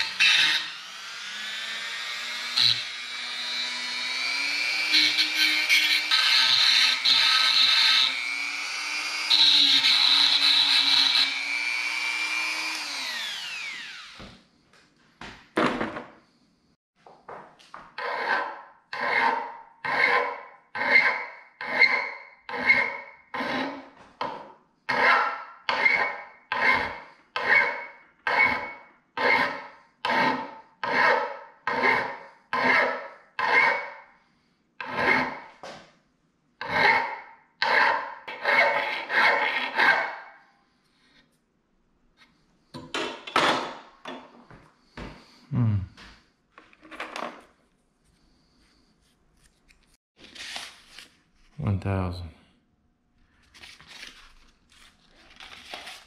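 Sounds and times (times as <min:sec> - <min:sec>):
hand file scraping metal: 0:02.1 - 0:08.2, 0:09.0 - 0:13.2, 0:18.0 - 0:23.9, 0:24.9 - 0:33.9, 0:34.8 - 0:35.5, 0:36.6 - 0:40.2.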